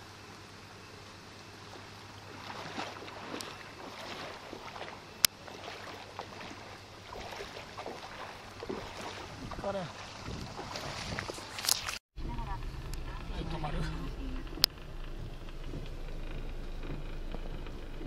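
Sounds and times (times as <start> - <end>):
steady low hum: 0.0 - 11.6, 12.2 - 18.0
floodwater splashing: 0.5 - 12.0.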